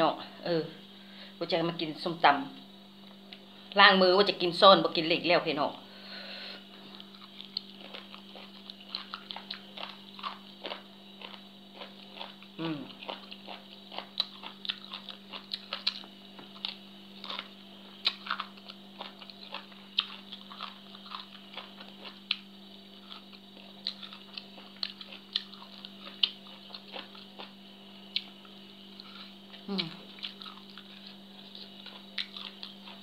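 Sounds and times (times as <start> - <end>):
steady low hum: 0.0 - 33.0
chewing and mouth noises: 6.9 - 33.0.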